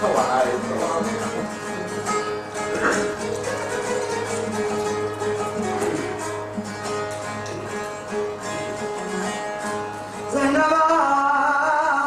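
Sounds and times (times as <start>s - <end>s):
man singing: 0.0s - 2.2s, 10.2s - 12.0s
plucked lute melody: 0.0s - 11.0s.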